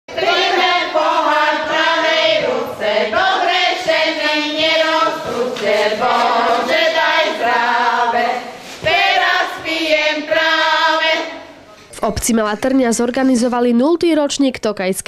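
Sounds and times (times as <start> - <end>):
women singing together: 0.1 - 11.7.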